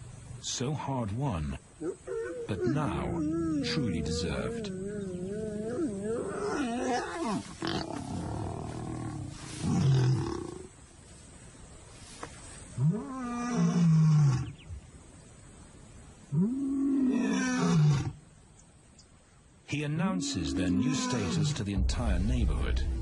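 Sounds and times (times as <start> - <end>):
lion roaring: 20.2 - 21.6.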